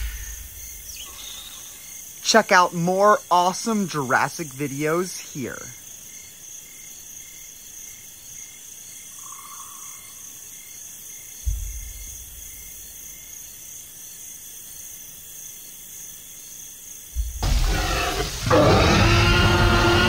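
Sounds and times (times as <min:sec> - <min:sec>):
crickets chirping: 0:00.0 - 0:20.0
low thud: 0:11.4 - 0:12.9, 0:17.2 - 0:18.2
loud deep rumble: 0:17.2 - 0:20.0.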